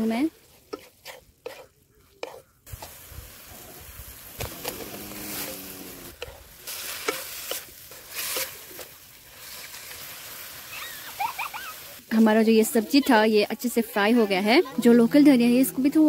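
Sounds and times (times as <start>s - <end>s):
food sizzling in frying pan: 0.0s - 15.1s
wooden spatula scraping pan: 0.5s - 3.0s, 4.4s - 10.1s.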